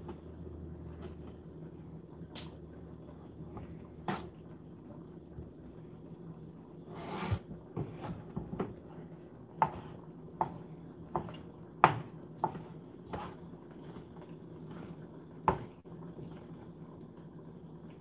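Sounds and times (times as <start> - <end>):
knife chopping on plastic board: 9.6 - 14.1, 14.7 - 15.8.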